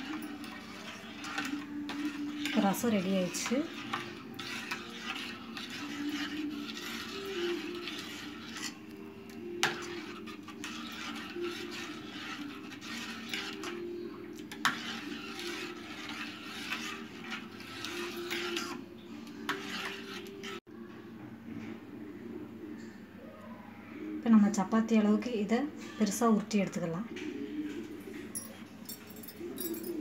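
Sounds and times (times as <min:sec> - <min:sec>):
spoon stirring liquid in bowl: 0:00.0 - 0:20.6
spoon clinking against bowl: 0:28.4 - 0:30.0.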